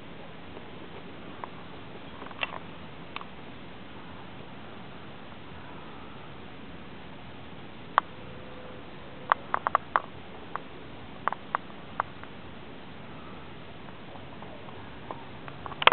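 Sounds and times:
microphone hiss: 0.0 - 15.9.

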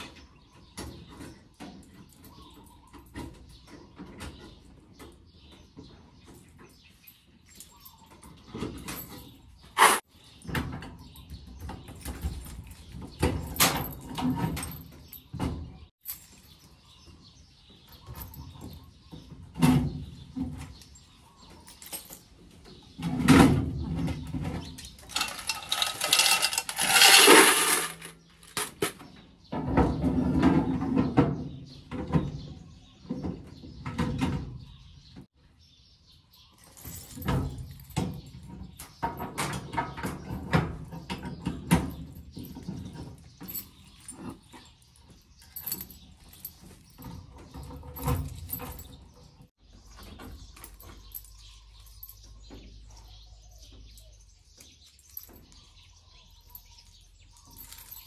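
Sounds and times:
coins jangling into plastic bucket: 24.6 - 29.0, 54.8 - 58.0
coin box clattering: 25.0 - 29.0.

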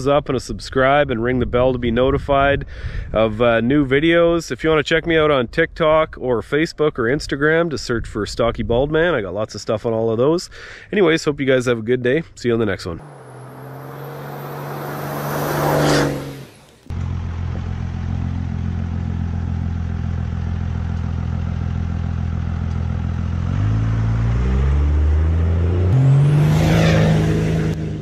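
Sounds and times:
engine running: 13.0 - 28.0.

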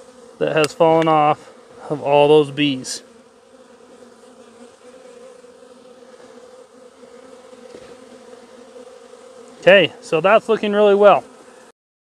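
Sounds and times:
bees buzzing: 0.0 - 11.8.

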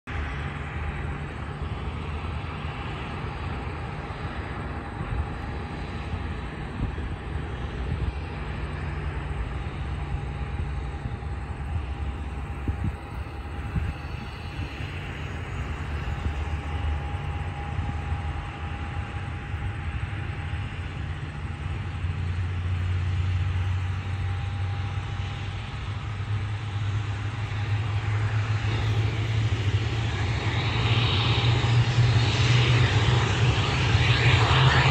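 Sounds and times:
distant airliner engines droning: 0.1 - 34.9.

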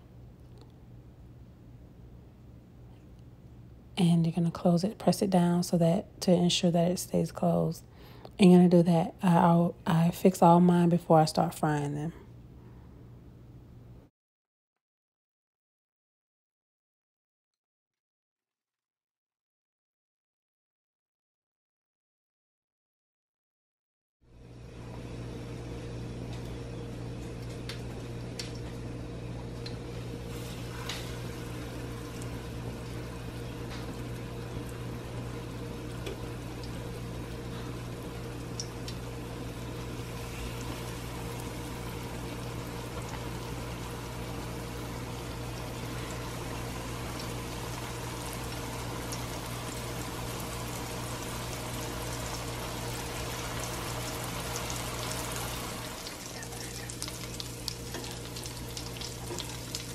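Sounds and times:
steady low hum: 24.3 - 59.9
oil sizzling in a pan: 29.6 - 59.9.

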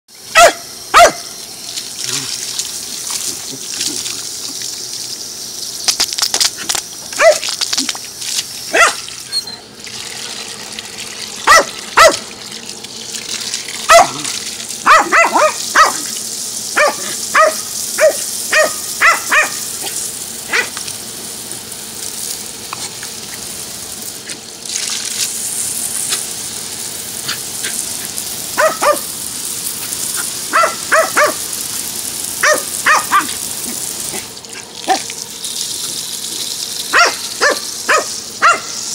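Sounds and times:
garden hose spray hissing: 0.1 - 38.9
dog barking and yipping: 0.3 - 1.4, 7.1 - 7.5, 8.7 - 9.6, 11.4 - 12.3, 13.8 - 16.1, 16.7 - 20.8, 28.5 - 29.1, 30.1 - 31.6, 32.4 - 34.3, 36.9 - 38.9.

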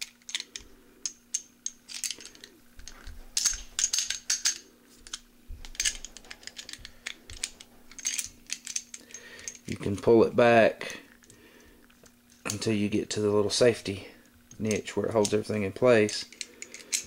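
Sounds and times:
pistol parts clicking and scraping: 0.0 - 10.1, 14.4 - 17.0.

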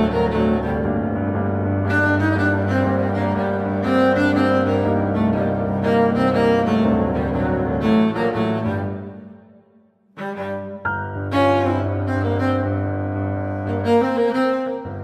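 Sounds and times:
instrumental background music: 0.0 - 15.0.

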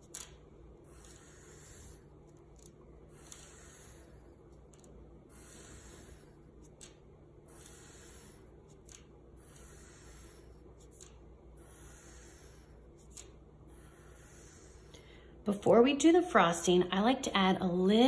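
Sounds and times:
pencil tapping paper clicks: 0.0 - 14.6
pencil scratching on paper: 0.8 - 6.8, 7.4 - 15.1.

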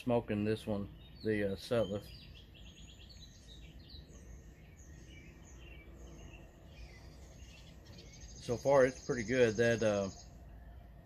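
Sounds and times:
small birds chirping: 0.0 - 11.0
low background rumble: 2.2 - 11.0.

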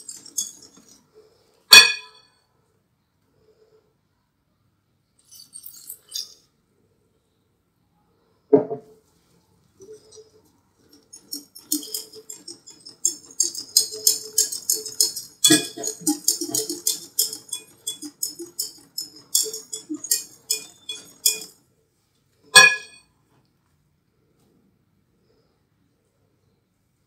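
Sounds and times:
utensil clinking against bowl: 0.0 - 1.0, 1.7 - 2.2, 9.8 - 21.6, 22.6 - 23.0.

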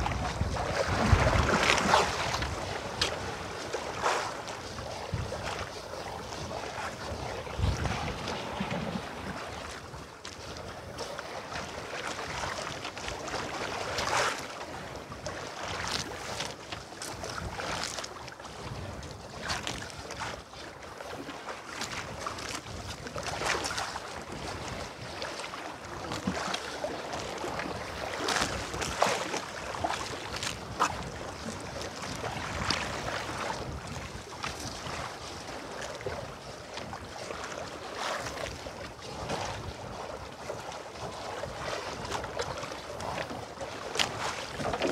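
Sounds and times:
water lapping against boat: 0.0 - 44.9
wind on microphone: 0.0 - 44.9.

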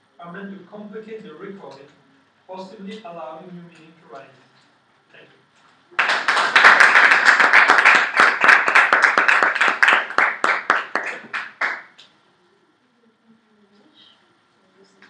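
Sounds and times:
audience clapping: 5.9 - 12.0.

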